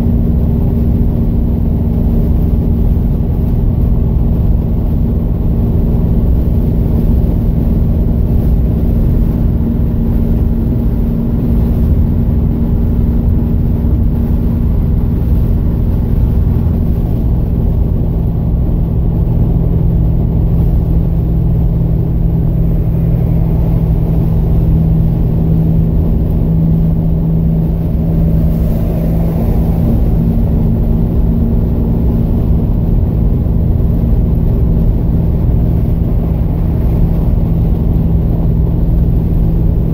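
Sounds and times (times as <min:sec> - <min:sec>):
car engine and road noise: 0:00.0 - 0:39.9
constant low hum: 0:00.0 - 0:39.9.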